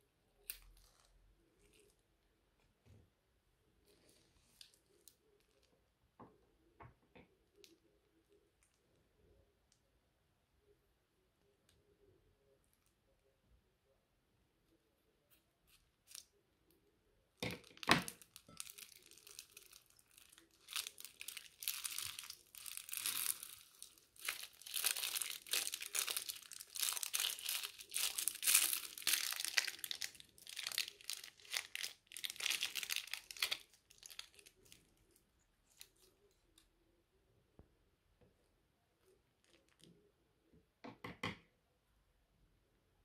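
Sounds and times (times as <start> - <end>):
plastic bag crinkling: 17.6 - 35.1.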